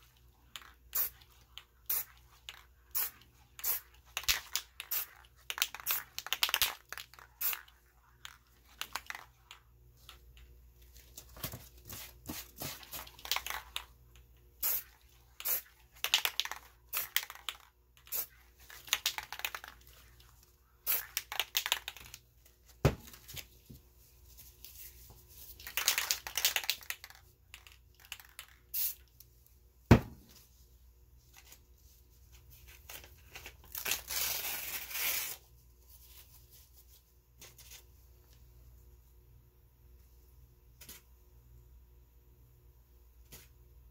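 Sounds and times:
spray paint can hissing: 0:00.9 - 0:01.2, 0:01.8 - 0:02.2, 0:02.9 - 0:06.8, 0:14.6 - 0:17.4, 0:18.1 - 0:18.3, 0:20.8 - 0:21.7, 0:28.7 - 0:29.0.

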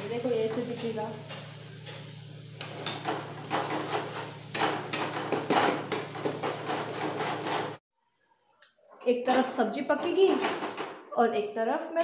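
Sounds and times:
paste frying in oil: 0:00.0 - 0:07.8
spatula scraping a metal pan: 0:02.8 - 0:07.8.

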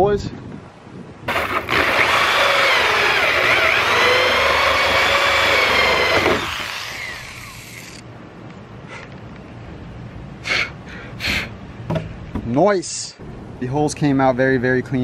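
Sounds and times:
electric drill cutting fiberglass: 0:01.3 - 0:08.0.

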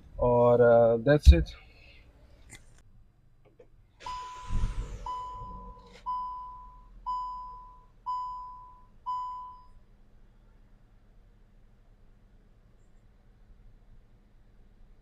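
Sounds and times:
car engine starting and idling: 0:04.0 - 0:08.2
dashboard warning chime: 0:05.1 - 0:09.7.

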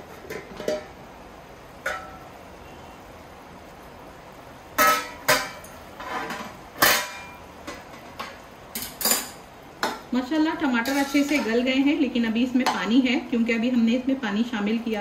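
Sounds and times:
metal pot lid clanking: 0:01.8 - 0:02.3, 0:04.8 - 0:10.0, 0:10.8 - 0:11.6.

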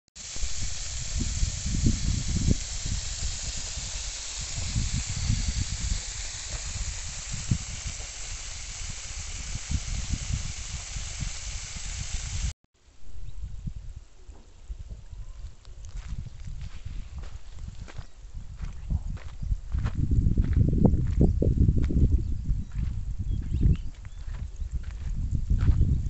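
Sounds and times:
water jets hissing: 0:00.2 - 0:12.6.

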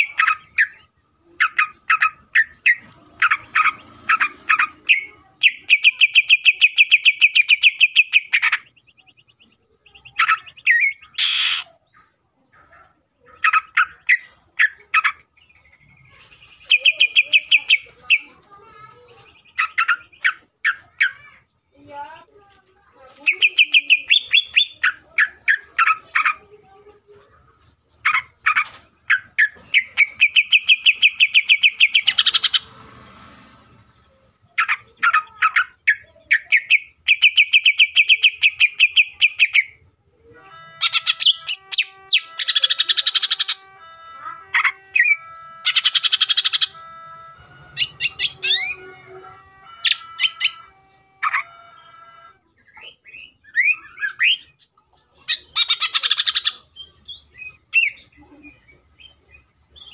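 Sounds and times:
bird singing rattling trills: 0:23.3 - 0:26.0, 0:27.9 - 0:32.7.

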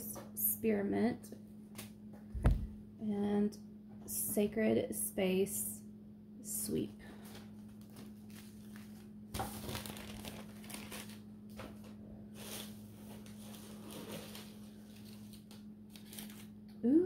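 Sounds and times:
steady low hum: 0:00.0 - 0:17.0
plastic bags crinkling: 0:07.6 - 0:11.3.

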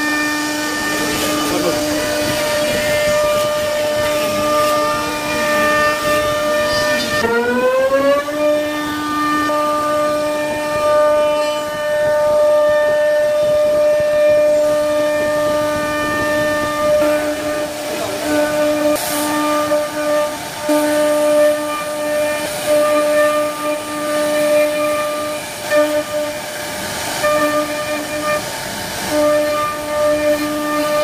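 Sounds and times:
wood being milled: 0:00.0 - 0:09.4
router spindle whining: 0:00.0 - 0:31.0.

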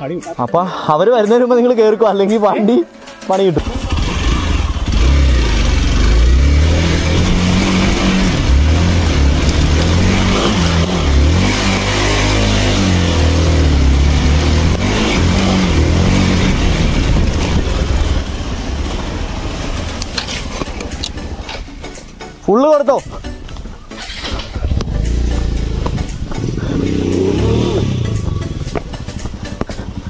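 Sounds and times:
motorcycle engine revving: 0:03.6 - 0:21.2, 0:23.9 - 0:30.0.

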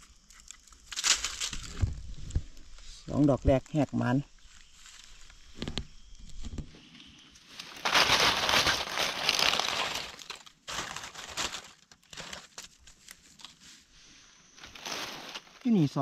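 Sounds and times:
dry leaves crackling and rustling: 0:00.8 - 0:02.0, 0:07.5 - 0:13.8, 0:14.6 - 0:16.0.

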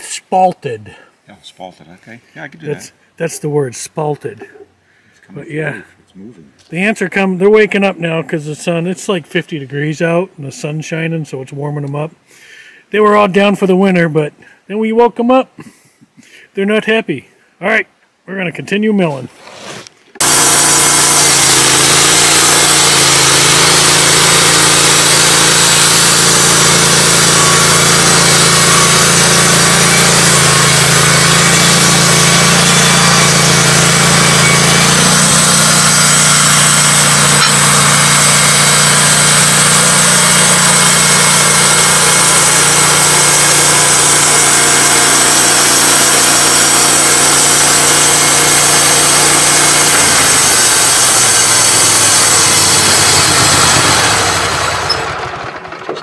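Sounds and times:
band blade sawing log: 0:19.4 - 0:55.1
sawmill engine running: 0:20.2 - 0:56.0.

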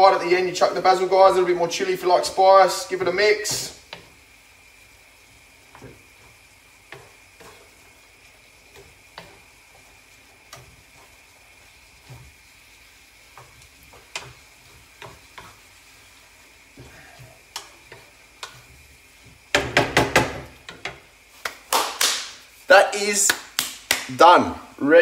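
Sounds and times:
faint sizzle: 0:00.0 - 0:25.0
wooden spatula scraping a pan: 0:02.0 - 0:04.4, 0:05.2 - 0:21.4
knocks against a pan: 0:19.5 - 0:21.0.

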